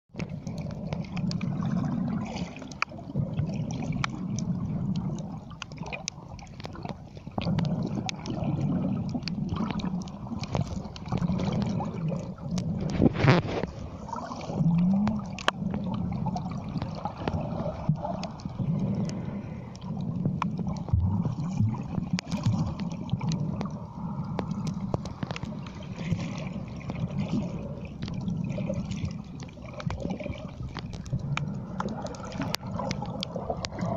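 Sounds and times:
sharp underwater clicks: 0.1 - 13.8, 14.6 - 33.9
muffled underwater water movement: 0.1 - 33.9.

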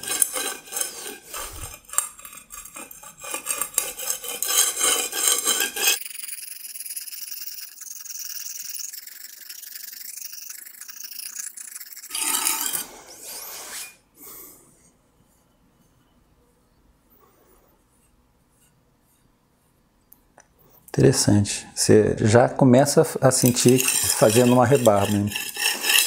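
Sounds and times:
knife rasping on brick: 0.0 - 6.0, 12.1 - 14.0, 23.4 - 26.0.

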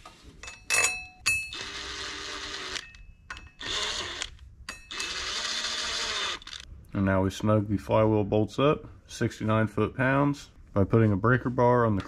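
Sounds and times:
metal bolts clinking: 0.4 - 1.6, 2.8 - 3.6
cordless power tool whirring: 1.6 - 2.9, 3.6 - 6.7.

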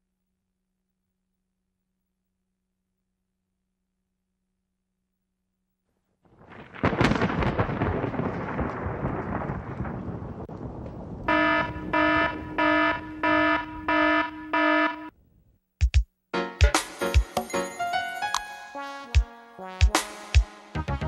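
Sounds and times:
thunderclap rumbling: 6.3 - 15.1
electronic alarm beeps: 11.3 - 15.1.

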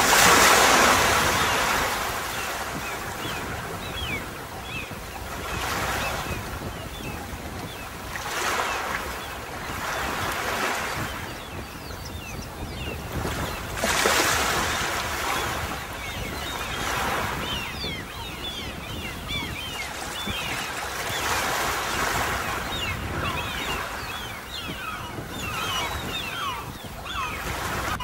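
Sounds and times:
sea waves breaking on beach: 0.0 - 28.0.

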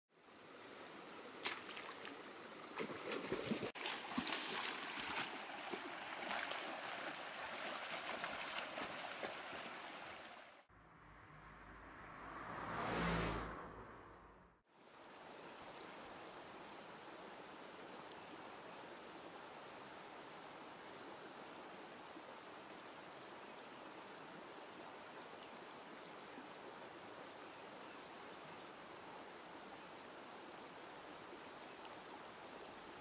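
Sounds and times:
stream rushing over rocks: 0.8 - 10.7
splashes in water: 1.4 - 10.5
low hum: 10.7 - 14.6
whoosh: 10.7 - 14.6.

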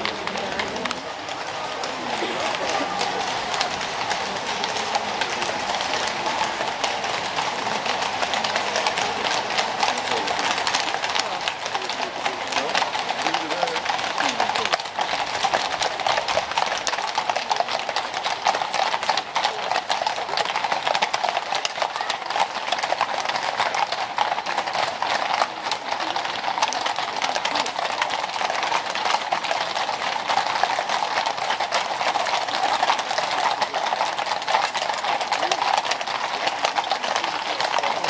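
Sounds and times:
hooves clip-clopping on brick: 0.0 - 38.0.

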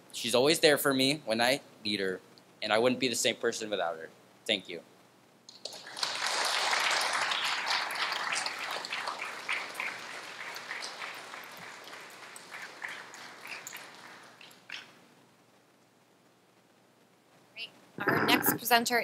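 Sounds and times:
audience applauding: 5.6 - 14.9.

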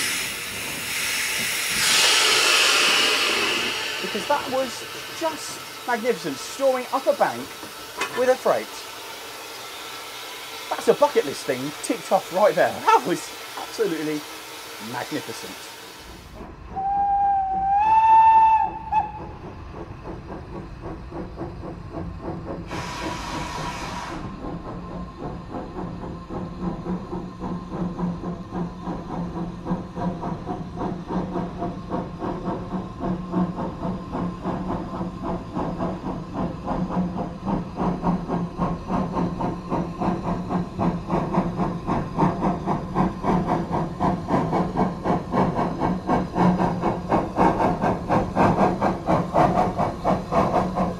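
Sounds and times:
steam hissing: 0.0 - 50.9
steam locomotive exhaust beats: 0.0 - 50.9
steam locomotive whistle: 16.8 - 19.3.

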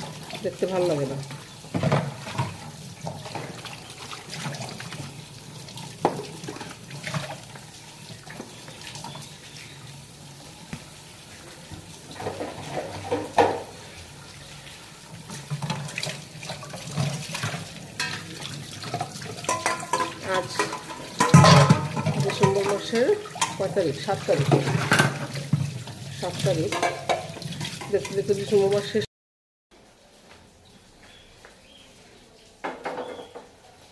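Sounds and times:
tap water running into sink: 0.0 - 29.0
dishes knocking and clinking: 1.7 - 3.6, 12.1 - 13.8, 16.8 - 18.3, 18.9 - 23.6, 24.4 - 25.7, 26.7 - 28.3, 32.6 - 33.6.

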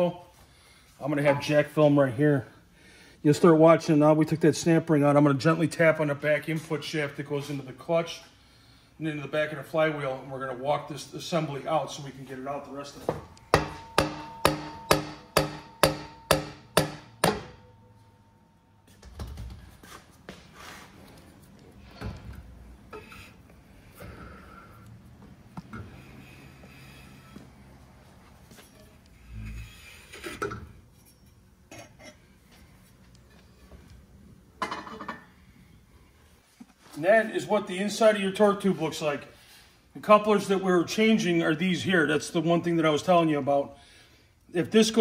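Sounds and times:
hammer tapping metal tube: 13.4 - 17.7.

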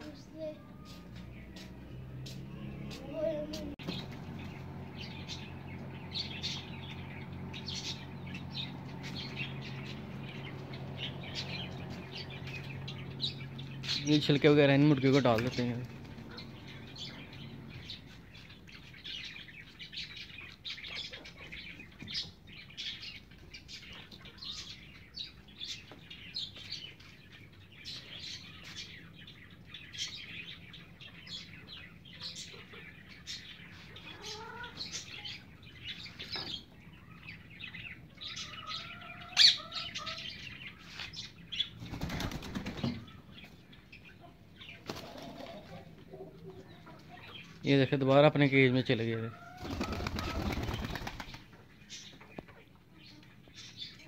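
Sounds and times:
soft bird calls: 0.0 - 54.0
hens pecking and scratching: 44.7 - 47.6, 49.4 - 53.3.

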